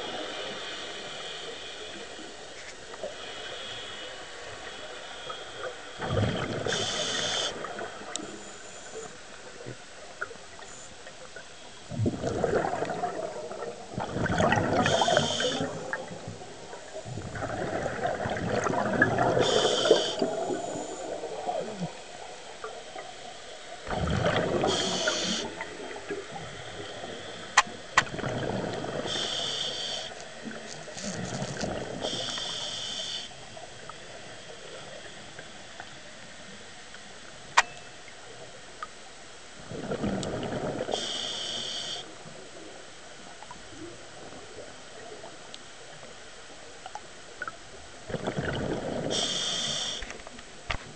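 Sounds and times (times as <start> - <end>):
regulator hissing on inhale: 0.1 - 2.4, 3.0 - 6.0, 6.6 - 9.1, 14.8 - 15.8, 19.4 - 21.8, 24.6 - 25.7, 29.0 - 33.6, 40.9 - 42.2, 49.1 - 50.2
exhaled bubbles rushing: 6.0 - 8.1, 11.9 - 22.0, 23.8 - 27.1, 28.0 - 29.2, 39.6 - 40.9, 48.1 - 49.1.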